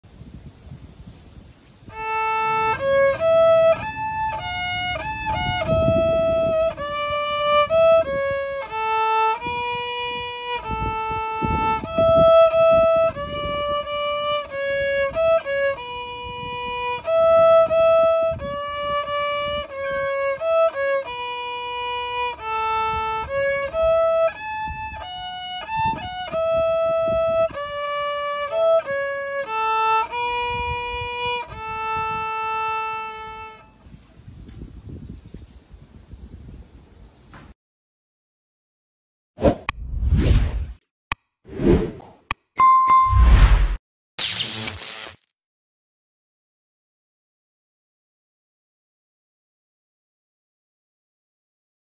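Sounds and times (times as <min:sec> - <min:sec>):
solo violin melody: 0:01.8 - 0:33.9.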